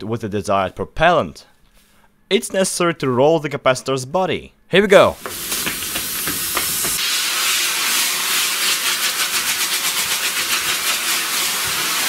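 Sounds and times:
rocket propellant hissing: 0:05.2 - 0:12.0.

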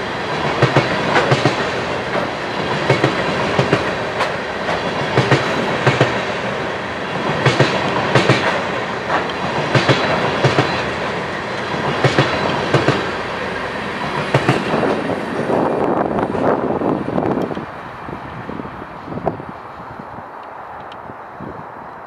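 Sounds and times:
wheels clicking over rail joints: 0:00.0 - 0:06.3, 0:07.1 - 0:13.4
train wheels rumbling: 0:00.0 - 0:22.0.

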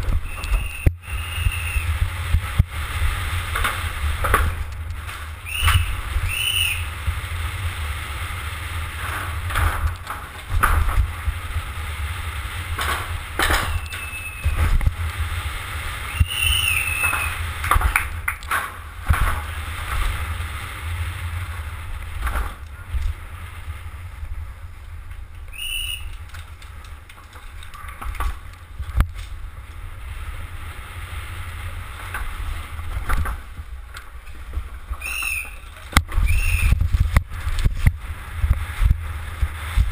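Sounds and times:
bike knocks and rattles: 0:00.0 - 0:07.8, 0:08.8 - 0:20.5, 0:21.4 - 0:23.3, 0:26.0 - 0:29.9, 0:31.8 - 0:39.9
wind buffeting microphone: 0:00.0 - 0:18.3, 0:28.0 - 0:39.9
tyre noise: 0:00.0 - 0:39.9
brief high squeals: 0:13.8 - 0:14.6, 0:35.0 - 0:36.8.

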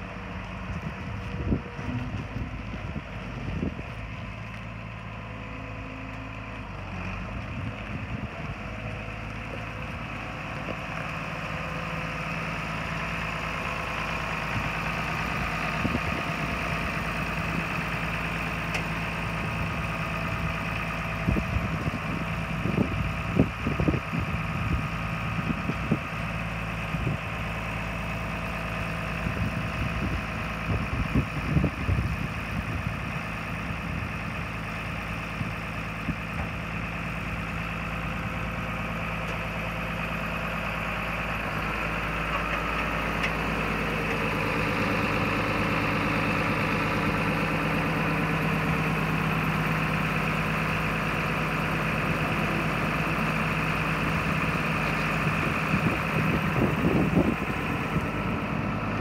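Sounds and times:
tractor engine idling: 0:00.0 - 0:59.0.

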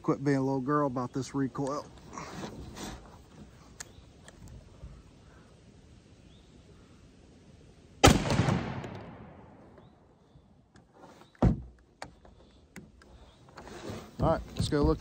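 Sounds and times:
shotgun shot: 0:08.0 - 0:09.6.

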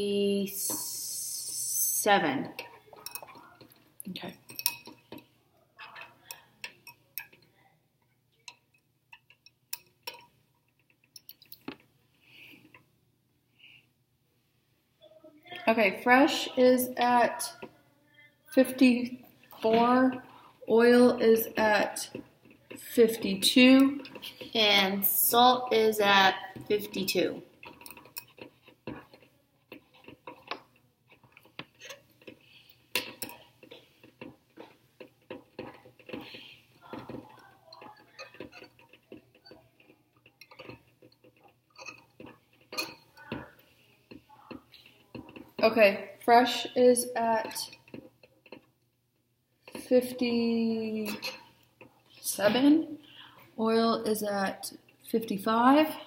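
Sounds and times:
thermometer clinking against glass: 0:02.6 - 0:05.3
faint ticks and pops of heating water: 0:05.9 - 0:11.9, 0:26.6 - 0:46.8.

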